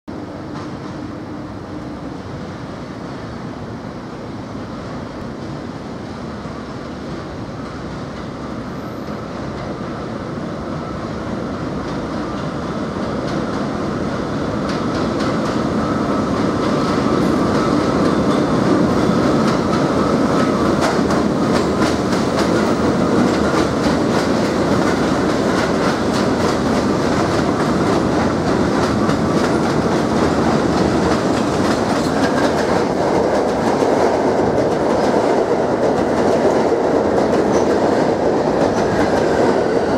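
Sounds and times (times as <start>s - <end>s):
subway train passing: 0.1s - 39.9s
wheels clacking over rail joints: 14.6s - 39.9s.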